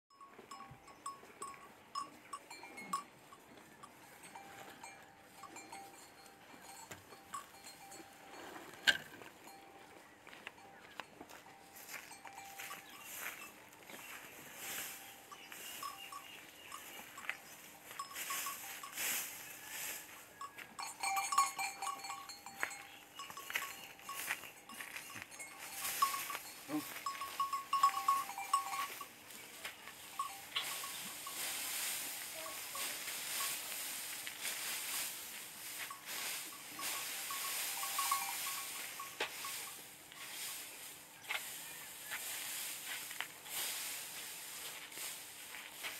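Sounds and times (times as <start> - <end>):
bell clinking: 0.1 - 8.7, 15.0 - 19.7, 20.3 - 29.2, 30.1 - 31.6, 35.8 - 40.3
hooves crunching dry straw: 3.2 - 45.9.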